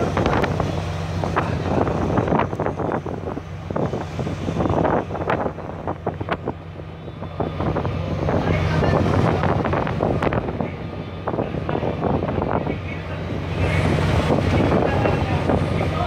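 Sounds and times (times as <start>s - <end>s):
ship engines humming: 0.0s - 16.0s
wind buffeting microphone: 0.0s - 16.0s.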